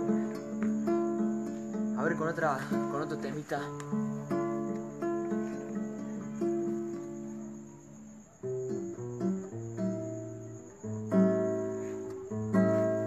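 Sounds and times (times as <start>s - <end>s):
acoustic guitar playing: 0.0s - 13.0s.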